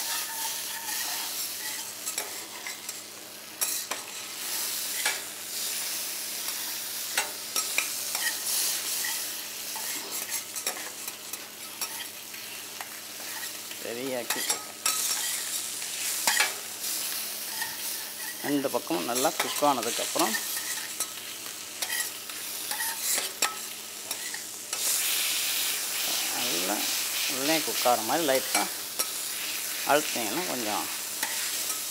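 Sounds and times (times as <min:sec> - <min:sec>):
metal spatulas scraping: 0:00.0 - 0:03.0
chicken sizzling on a griddle: 0:00.0 - 0:31.9.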